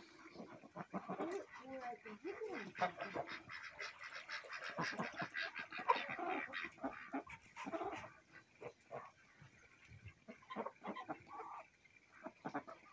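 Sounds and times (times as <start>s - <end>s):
geese honking: 0.0s - 9.2s
ducks quacking: 0.0s - 12.9s.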